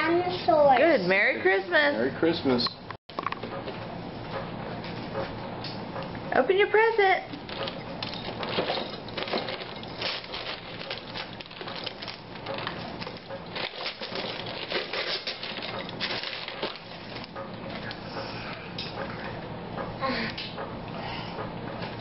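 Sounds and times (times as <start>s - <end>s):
gift paper rustling and crinkling: 7.4s - 17.3s.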